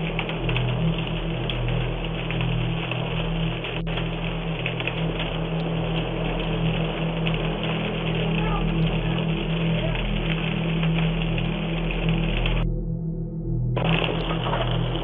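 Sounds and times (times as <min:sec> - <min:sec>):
fire crackling: 0:00.0 - 0:12.6, 0:13.8 - 0:15.0
steady low hum: 0:00.0 - 0:15.0.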